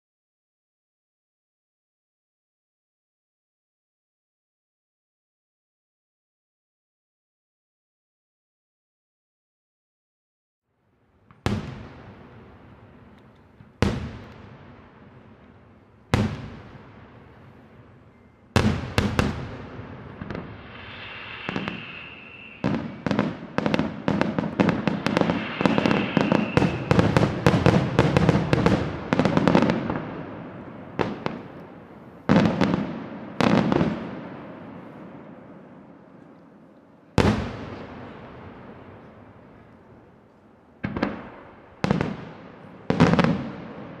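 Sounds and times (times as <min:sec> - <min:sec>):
fireworks bursting and crackling: 0:11.1 - 0:36.3, 0:37.2 - 0:44.0.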